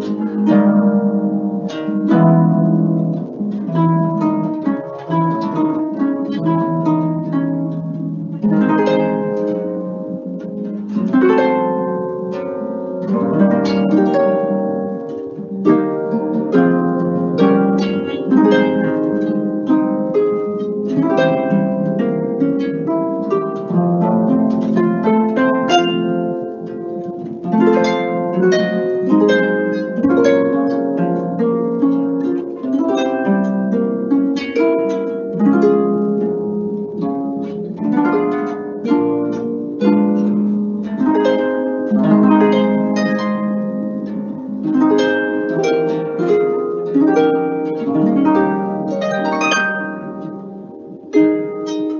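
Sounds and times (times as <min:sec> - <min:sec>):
harp playing: 0:00.0 - 0:51.9.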